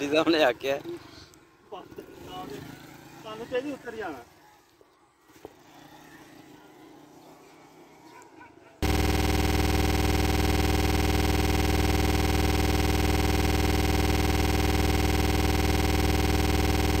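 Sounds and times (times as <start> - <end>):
loud buzzing drone: 8.8 - 17.0.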